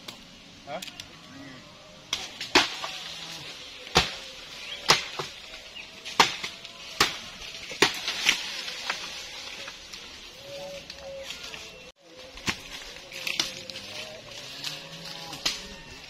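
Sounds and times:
blade chopping bamboo: 2.1s - 2.9s, 3.9s - 8.4s.

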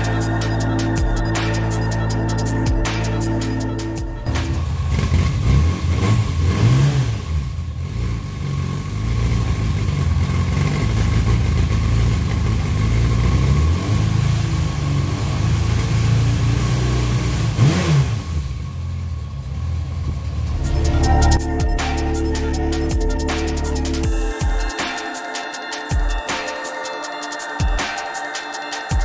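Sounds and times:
motorcycle engine revving: 4.2s - 22.1s.

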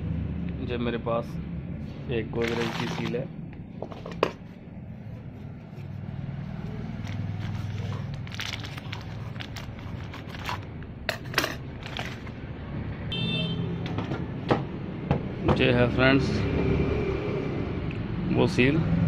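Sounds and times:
plastic bag crinkling: 2.4s - 3.2s, 7.1s - 10.6s.

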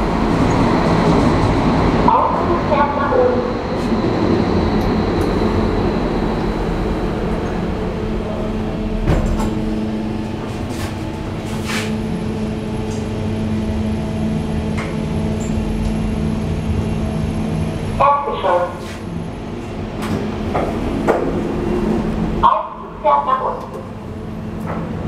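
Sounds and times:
elevator drive hum: 0.0s - 25.0s
elevator doors sliding shut: 8.6s - 12.1s.

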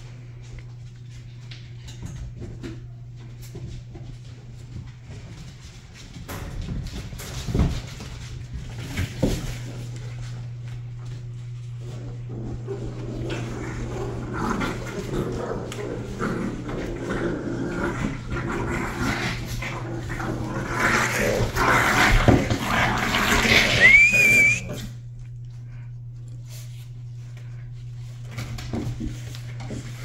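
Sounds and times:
puppies growling and scuffling: 0.0s - 30.0s
puppy squealing: 23.8s - 24.7s.

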